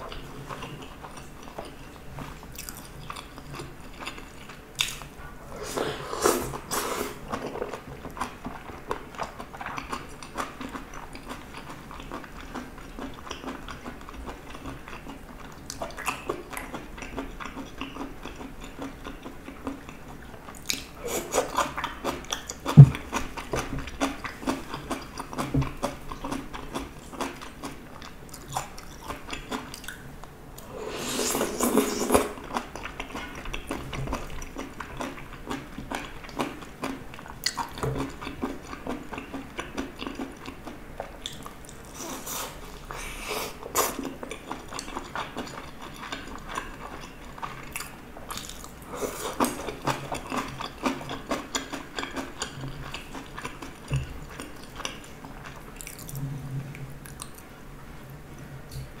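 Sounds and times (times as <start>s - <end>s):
person chewing with wet mouth sounds: 0.0s - 57.5s.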